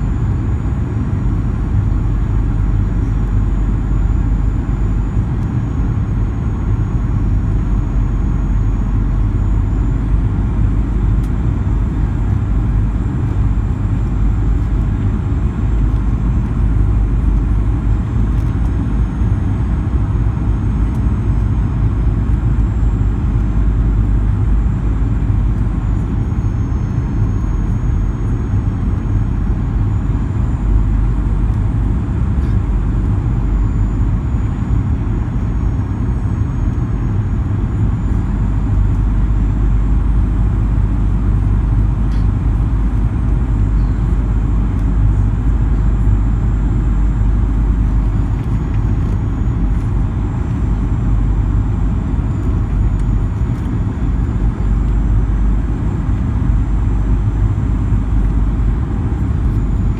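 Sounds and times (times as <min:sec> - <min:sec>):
airplane cabin rumble: 0:00.0 - 0:59.9
faint high engine whine: 0:00.0 - 0:59.9.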